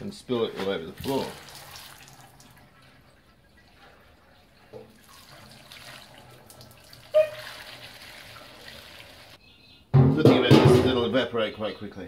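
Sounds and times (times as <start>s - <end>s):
liquid splashing on concrete: 0.6s - 2.6s
petrol pouring into a funnel: 0.9s - 9.3s.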